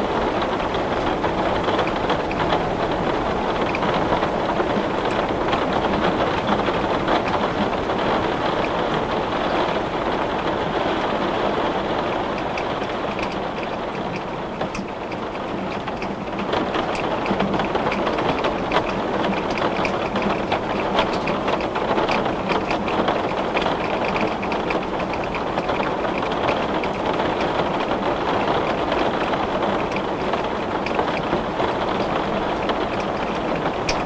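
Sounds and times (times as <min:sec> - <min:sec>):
heavy rain on window glass: 0:00.0 - 0:34.0.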